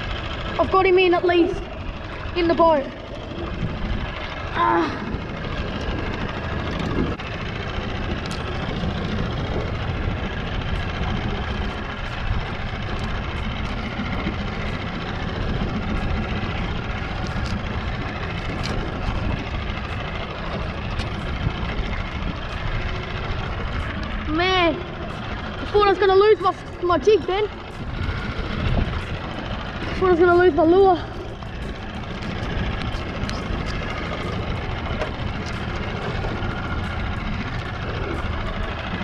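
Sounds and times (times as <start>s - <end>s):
wind buffeting microphone: 0.0s - 39.0s
light ticks: 8.2s - 8.6s, 17.0s - 22.7s, 31.4s - 39.0s.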